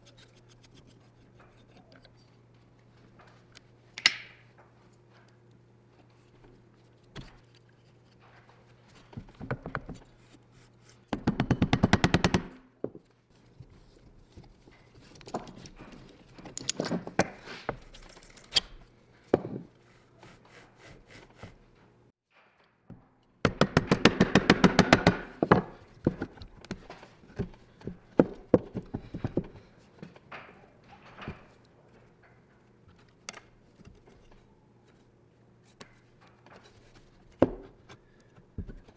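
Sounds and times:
metal tools clicking and knocking: 15.0s - 18.8s.

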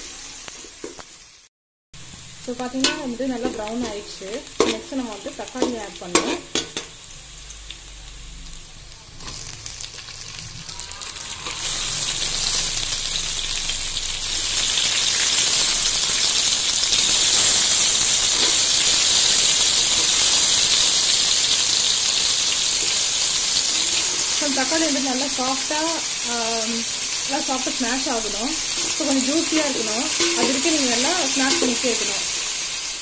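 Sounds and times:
tomatoes sizzling in hot oil: 0.0s - 33.0s.

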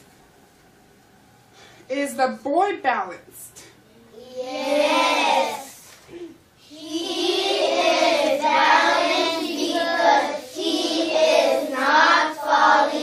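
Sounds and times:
children chanting in chorus: 4.2s - 5.8s, 6.6s - 13.0s.

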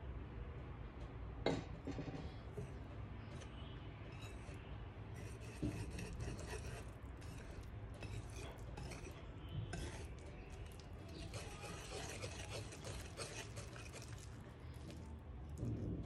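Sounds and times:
whisk scraping in a bowl: 4.1s - 16.0s.

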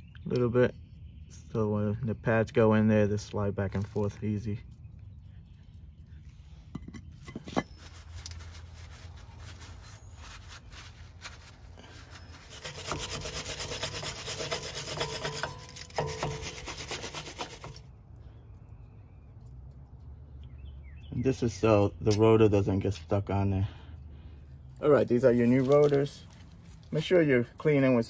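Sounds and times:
brush applying grease: 7.2s - 17.9s
rag scrubbing steel hub: 12.1s - 17.8s.

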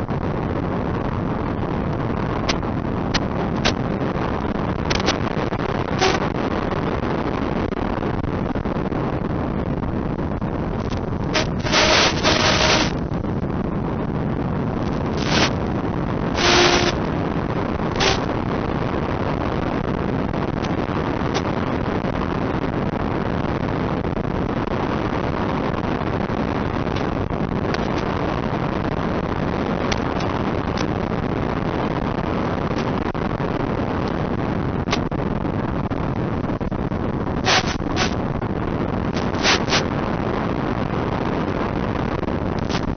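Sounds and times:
steady rushing noise: 0.0s - 42.9s
short loud crackles: 10.8s - 13.0s, 14.8s - 15.8s, 16.4s - 17.1s, 18.0s - 18.4s, 37.4s - 38.3s, 39.1s - 39.9s.

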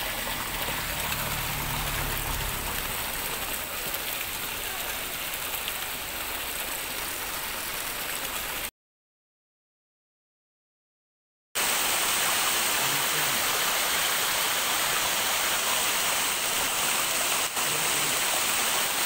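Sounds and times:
water gushing into pond: 0.0s - 8.7s, 11.6s - 19.0s.

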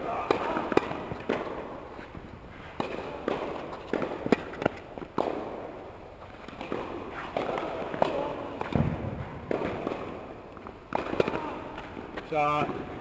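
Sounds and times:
tennis balls struck and bouncing: 0.0s - 13.0s
footsteps on court: 0.5s - 5.6s, 6.2s - 13.0s.

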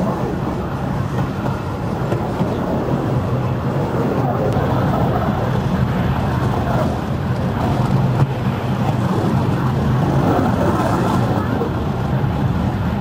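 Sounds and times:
train running on rails: 0.0s - 13.0s
wind on microphone: 0.0s - 13.0s.

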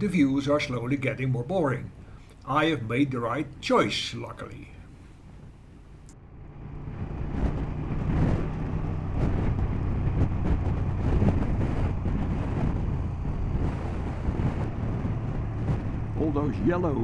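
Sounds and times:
wind noise on microphone: 5.0s - 17.0s
motorcycle engine running: 6.2s - 17.0s.

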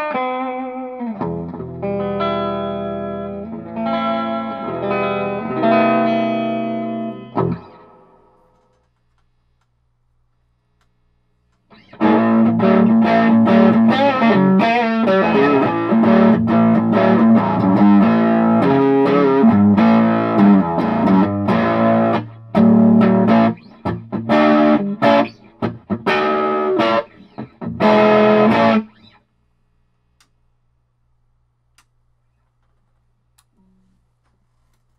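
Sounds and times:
electric guitar chords and riffs: 0.0s - 8.4s, 11.7s - 29.2s
amp hum: 0.9s - 34.9s.

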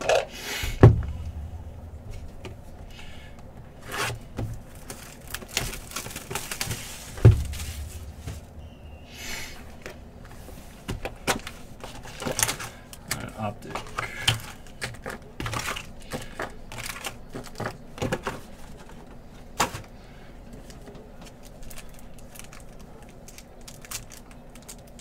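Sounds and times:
cardboard rustling and scraping: 0.7s - 12.8s.

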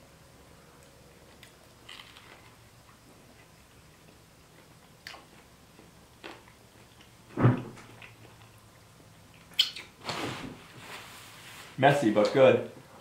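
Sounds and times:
people chewing sandwiches: 1.2s - 10.0s.

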